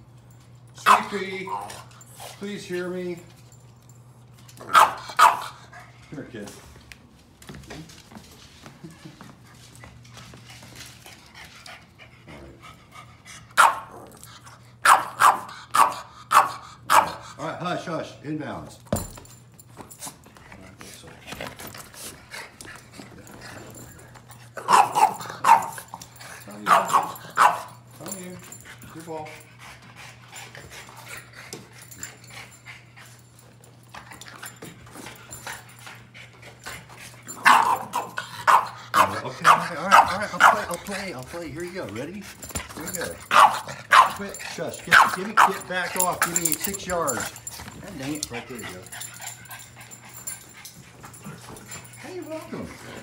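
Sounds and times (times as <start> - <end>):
dog barking: 0.8 - 1.8, 4.6 - 5.6, 13.6 - 13.9, 14.8 - 17.2, 24.6 - 25.9, 26.7 - 27.8, 37.4 - 40.8, 43.3 - 44.2, 44.9 - 45.7
dog panting: 8.8 - 13.6, 19.9 - 53.0.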